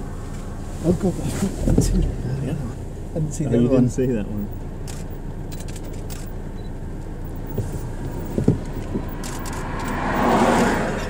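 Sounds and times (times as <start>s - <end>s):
steady low rumble: 0.0s - 11.0s
car passing close by: 7.6s - 11.0s.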